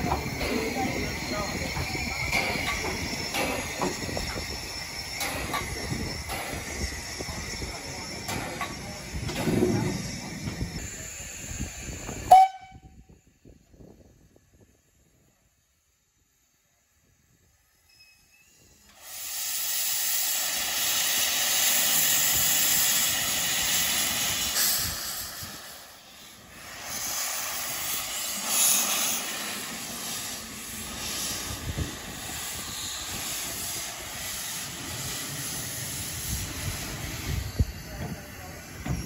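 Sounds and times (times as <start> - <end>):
steam locomotive blow-off: 0.0 - 39.0
steam hissing from drain cocks: 18.7 - 37.9.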